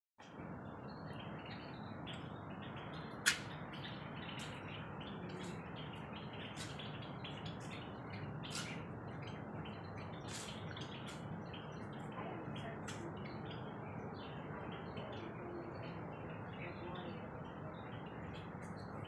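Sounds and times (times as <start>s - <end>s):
small birds chirping: 0.2s - 19.0s.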